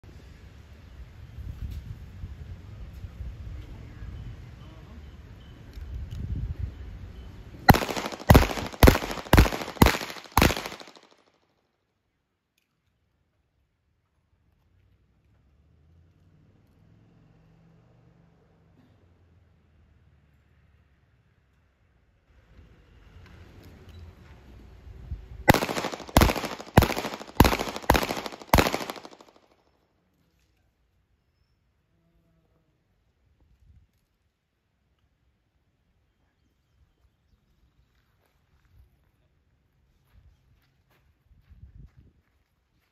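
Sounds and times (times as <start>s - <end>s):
handgun shots echoing: 7.7s - 11.2s, 25.5s - 29.4s.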